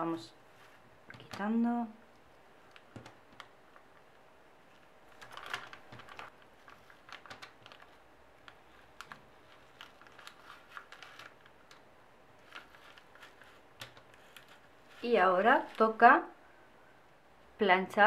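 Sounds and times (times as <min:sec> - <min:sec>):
tape peeling crackle: 0:04.7 - 0:15.0.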